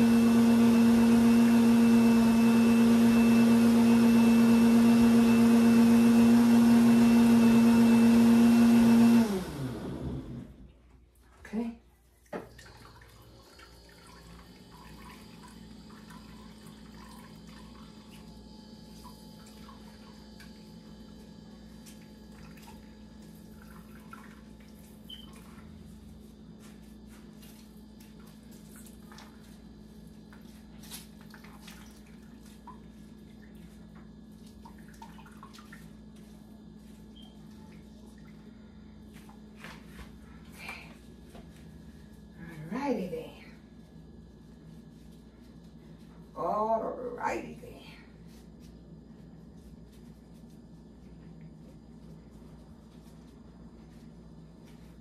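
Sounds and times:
juice trickling into a jug: 12.3 - 25.8, 31.1 - 36.2.

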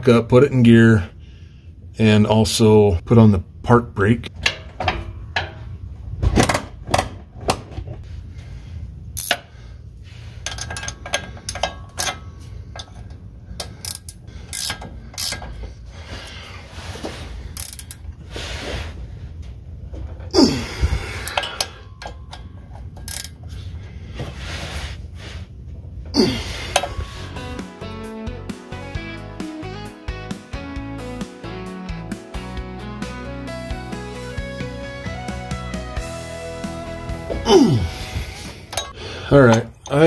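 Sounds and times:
ratchet wrench clicking: 9.2 - 9.4, 12.8 - 15.5, 17.6 - 18.0, 23.0 - 23.4
metal tools clinking: 10.4 - 15.6, 21.2 - 23.4, 38.7 - 40.0.

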